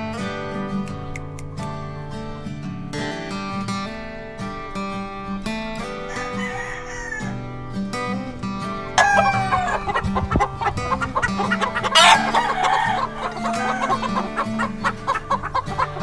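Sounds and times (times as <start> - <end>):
acoustic guitar music: 0.0 - 16.0
chicken clucking: 6.1 - 7.2, 9.0 - 16.0
rooster crowing: 6.1 - 7.4, 9.0 - 16.0.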